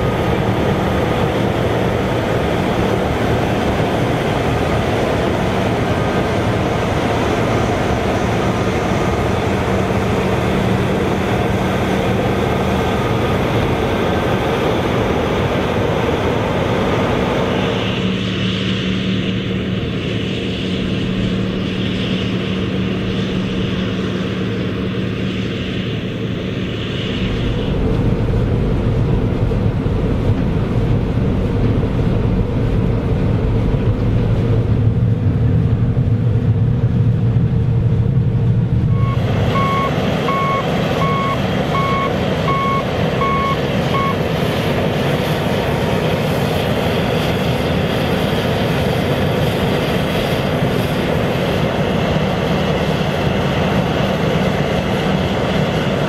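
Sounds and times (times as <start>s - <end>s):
combine harvester engine running: 0.0s - 56.0s
warning beeper: 38.9s - 44.2s.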